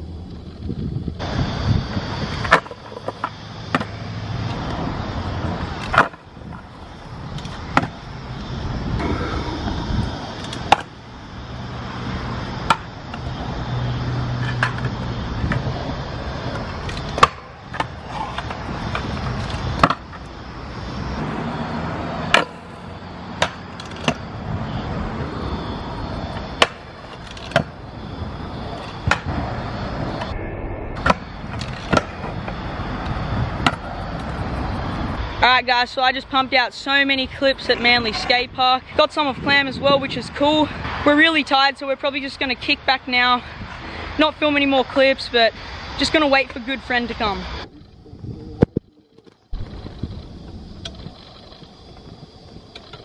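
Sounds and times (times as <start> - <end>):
scooter wheels rolling on concrete: 0.0 - 30.3, 31.4 - 53.0.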